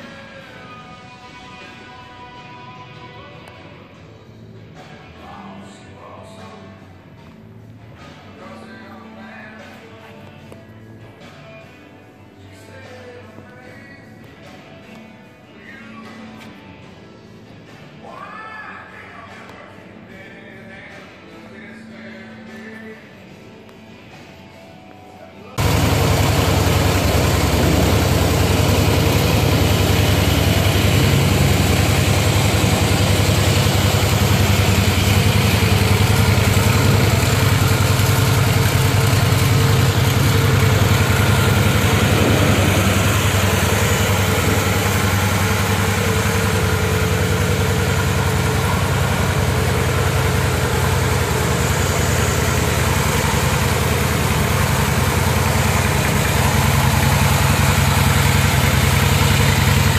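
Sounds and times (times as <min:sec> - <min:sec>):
motorcycle engine idling: 0:25.6 - 0:59.9.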